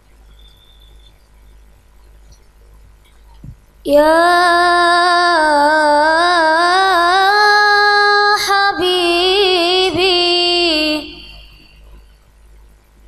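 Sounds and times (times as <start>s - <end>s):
person singing unaccompanied: 3.9s - 11.8s.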